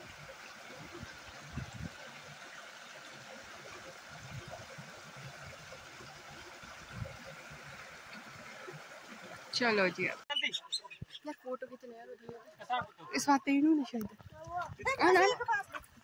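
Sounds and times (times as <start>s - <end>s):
stream water rushing: 0.0s - 10.2s.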